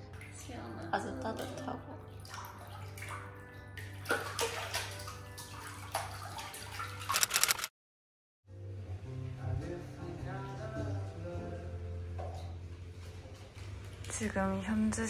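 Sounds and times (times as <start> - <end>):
water bubbling and splashing: 1.3 - 7.2.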